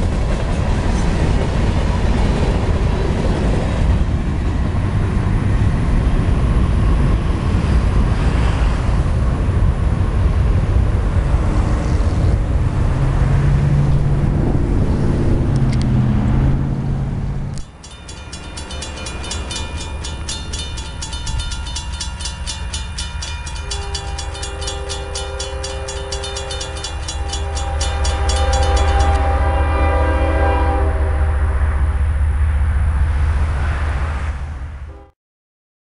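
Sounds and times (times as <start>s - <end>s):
diesel locomotive rumble: 0.0s - 35.0s
crossing bell ringing: 17.6s - 30.7s
locomotive horn: 23.4s - 31.7s, 34.9s - 35.1s.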